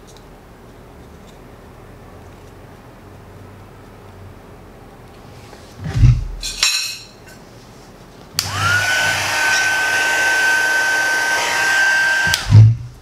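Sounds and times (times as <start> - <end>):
heat gun motor whining: 8.4 - 12.8.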